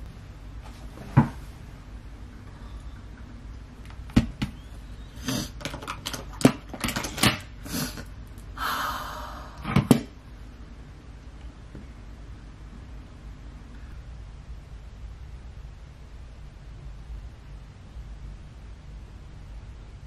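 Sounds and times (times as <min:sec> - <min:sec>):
small containers clicking and tapping: 0:05.5 - 0:07.5.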